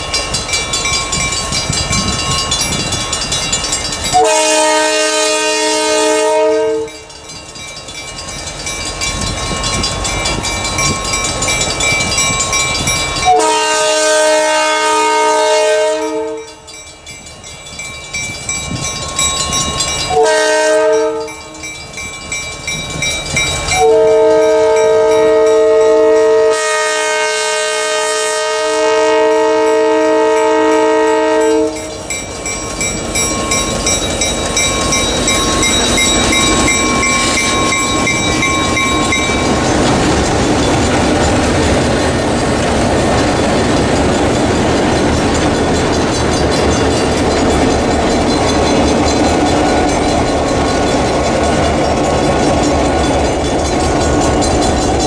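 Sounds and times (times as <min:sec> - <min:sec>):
bell ringing: 0:00.0 - 0:04.6, 0:06.8 - 0:13.4, 0:16.0 - 0:20.3, 0:20.9 - 0:26.4, 0:30.4 - 0:42.1, 0:43.2 - 0:55.0
locomotive horn blasts: 0:04.1 - 0:07.1, 0:13.2 - 0:16.7, 0:20.1 - 0:21.6, 0:23.8 - 0:32.0
locomotives rumbling past: 0:29.5 - 0:55.0.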